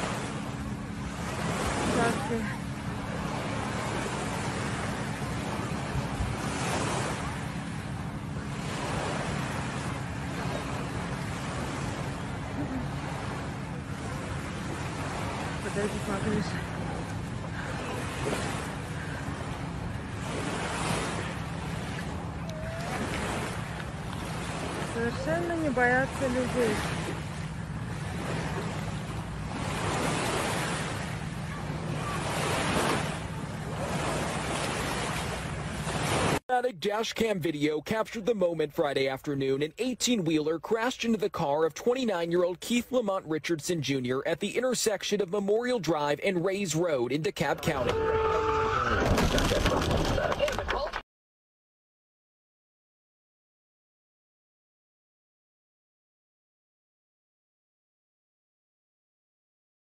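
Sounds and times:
small waves washing onto sand: 0.0 - 37.9.

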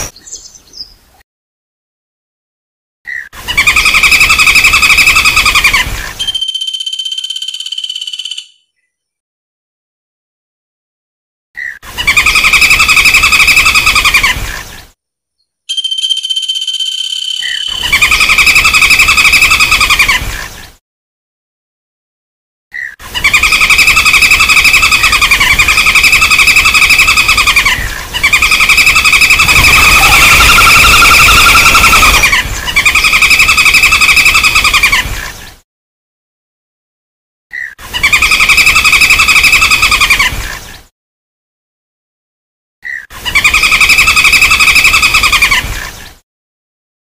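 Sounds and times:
woodpecker rattling trill: 6.2 - 8.6, 15.7 - 19.9, 28.3 - 34.8.

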